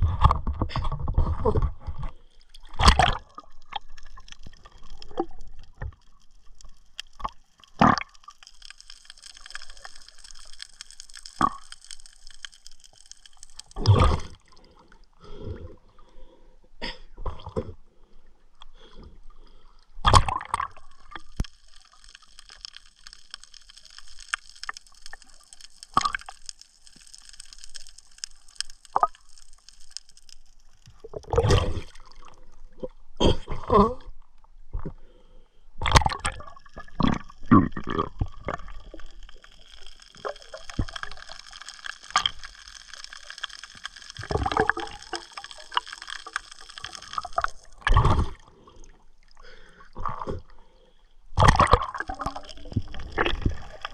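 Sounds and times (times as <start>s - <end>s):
water gurgling and sloshing: 30.4s - 35.2s, 35.8s - 53.9s.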